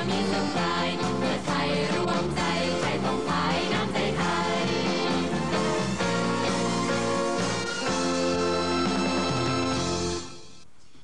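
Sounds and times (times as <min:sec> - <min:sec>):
mixed choir singing: 0:00.0 - 0:06.8
band accompaniment: 0:00.0 - 0:10.6.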